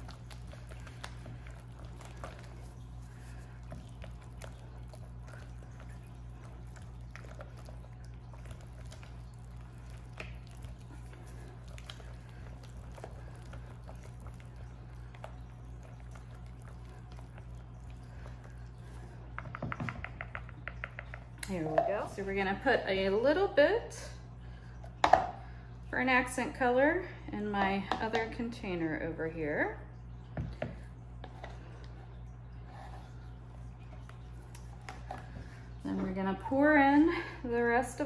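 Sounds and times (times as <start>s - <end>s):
whisk stirring thick batter: 0.0s - 22.2s
steady low hum: 0.0s - 38.0s.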